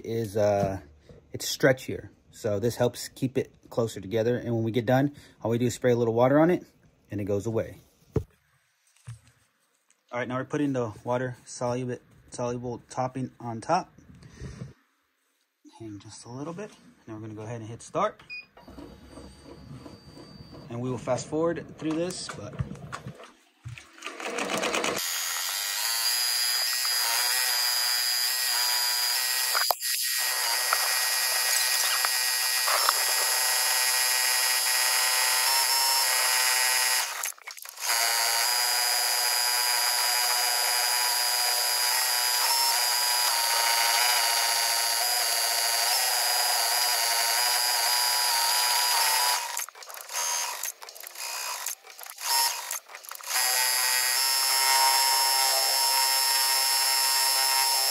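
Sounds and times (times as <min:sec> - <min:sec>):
embroidery machine high buzz: 0:24.9 - 0:57.9.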